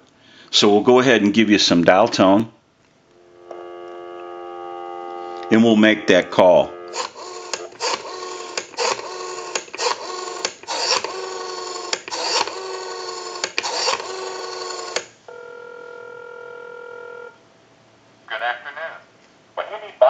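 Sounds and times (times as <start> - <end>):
line tone: 3.2 - 7.0
rotary dial pulse clicks: 6.8 - 15.1.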